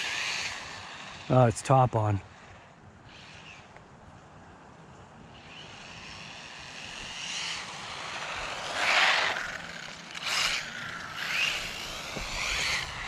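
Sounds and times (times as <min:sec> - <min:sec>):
electric motor whining: 0:00.0 - 0:03.8, 0:05.2 - 0:13.0
tyres scraping: 0:05.5 - 0:13.0.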